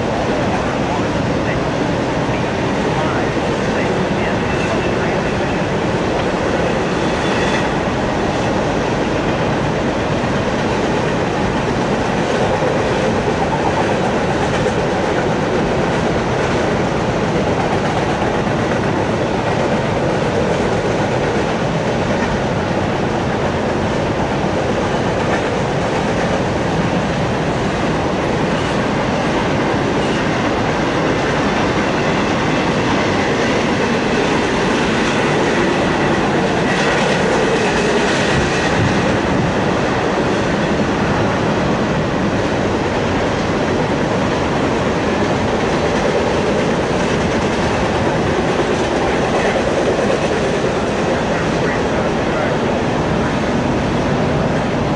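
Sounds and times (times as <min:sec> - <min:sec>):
freight train wheels clattering: 0:01.3 - 0:54.9.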